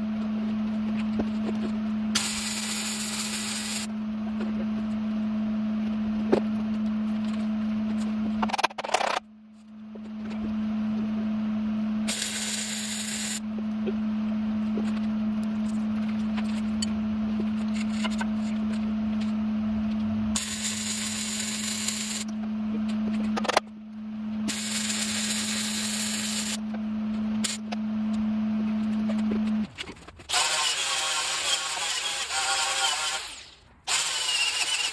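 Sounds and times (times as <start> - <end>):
steady machine hum: 0.0 - 34.3
arc welding sizzling: 2.2 - 3.9, 12.1 - 13.4, 20.4 - 22.3, 24.5 - 26.6.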